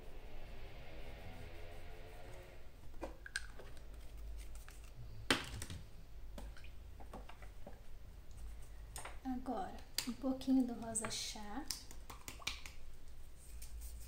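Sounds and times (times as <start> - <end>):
painting tools clicking and tapping: 9.8 - 12.8.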